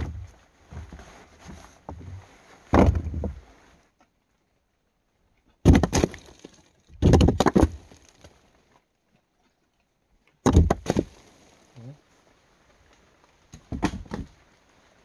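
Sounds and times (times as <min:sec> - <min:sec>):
knocks and cracks of breaking: 0:05.6 - 0:08.4, 0:10.4 - 0:11.3, 0:13.6 - 0:14.3.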